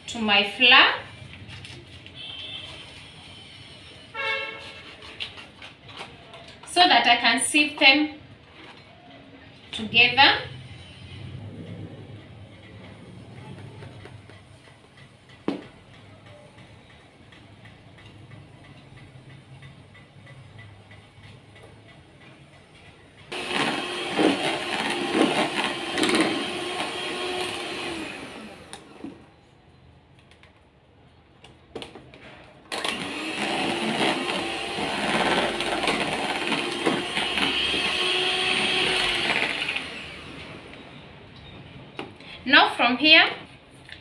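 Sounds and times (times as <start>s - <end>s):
electric hand mixer beating batter: 23.3s - 29.2s, 32.7s - 40.8s.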